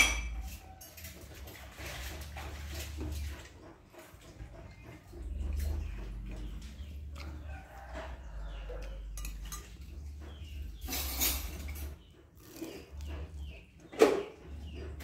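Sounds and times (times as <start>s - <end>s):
spoon scraping a ceramic plate: 8.5s - 13.5s.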